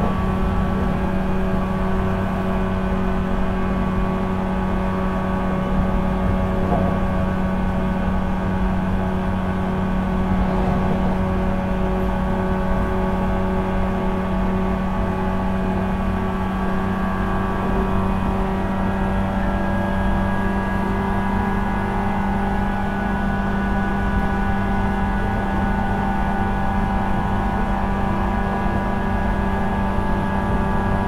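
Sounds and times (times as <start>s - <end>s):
low train hum and rumble: 0.0s - 31.0s.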